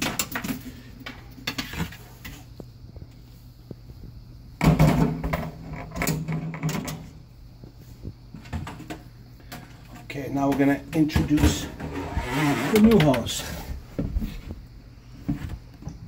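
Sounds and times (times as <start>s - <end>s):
hose rubbing and rattling: 11.3s - 13.7s.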